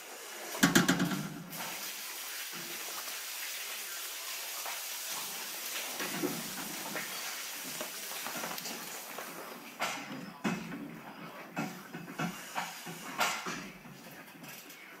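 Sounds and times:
faint knocks: 0.6 - 1.5.

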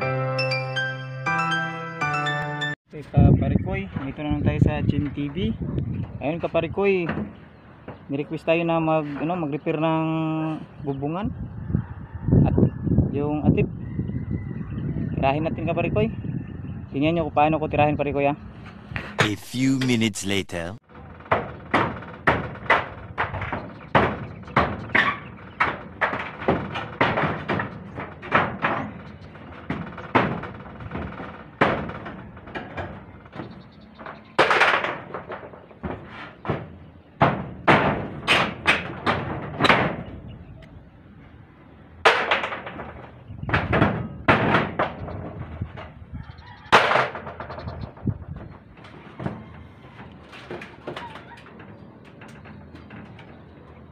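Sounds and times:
hammer striking metal roof: 7.0 - 8.1, 21.3 - 40.2, 42.0 - 45.9.

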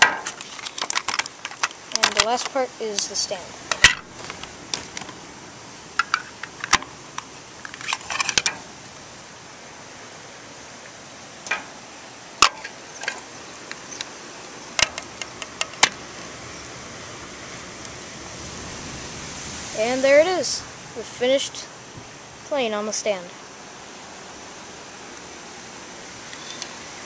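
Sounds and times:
plastic parts clicking: 0.0 - 2.5
steady hiss: 0.0 - 27.0.

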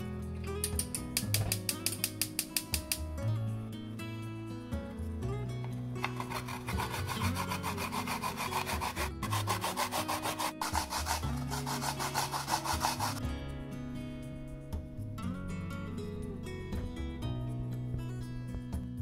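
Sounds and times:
radish grating rasping strokes: 6.0 - 13.2.

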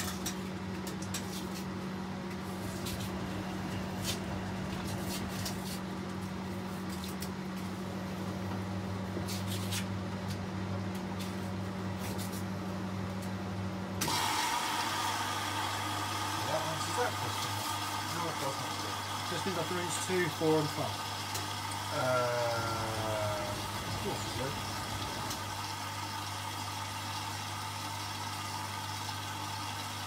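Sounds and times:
washing machine humming: 0.0 - 30.0
hissy running sound: 16.1 - 27.4.

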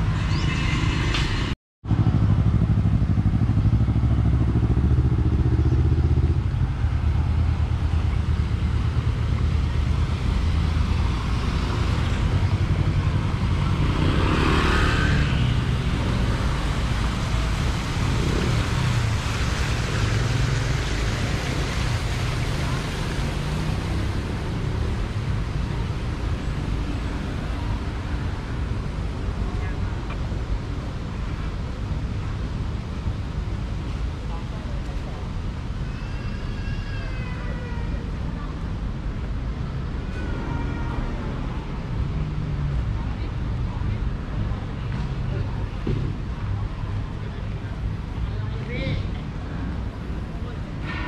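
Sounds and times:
street traffic engine hum: 0.0 - 51.0
motor scooter passing by: 12.5 - 16.8.

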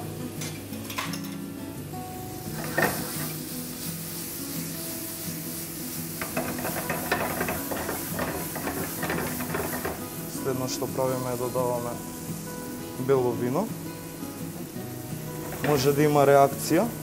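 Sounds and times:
food sizzling in a pan: 0.0 - 17.0
utensil clinking and scraping: 6.2 - 10.0.

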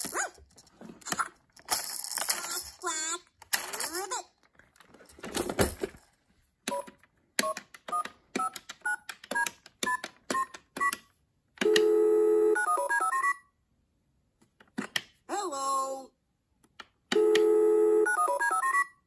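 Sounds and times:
toy clattering: 0.0 - 6.2
toy telephone dialing beeps: 6.7 - 13.5, 17.1 - 19.0.

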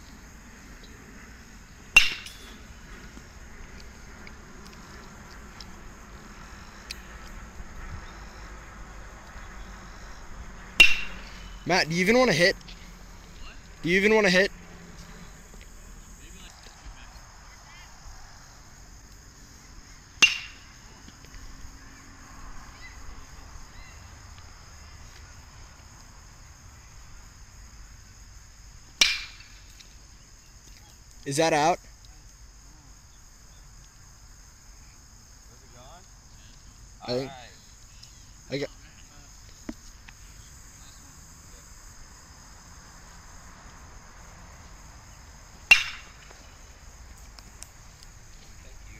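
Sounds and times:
insects chirping: 0.0 - 48.9
baseball bat hitting ball: 1.9 - 2.6, 10.8 - 11.5, 20.2 - 20.8, 29.0 - 29.6, 45.6 - 46.4.

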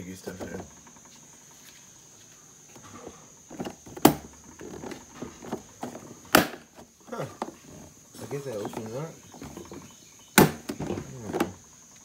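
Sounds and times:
plastic tool box rattling: 3.5 - 11.6.

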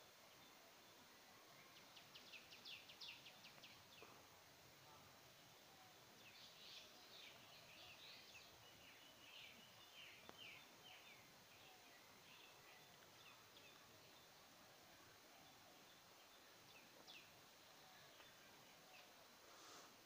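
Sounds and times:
background hiss: 0.0 - 20.0
faint bird chirps: 0.0 - 20.0
faint click: 10.2 - 10.5, 16.7 - 19.2.

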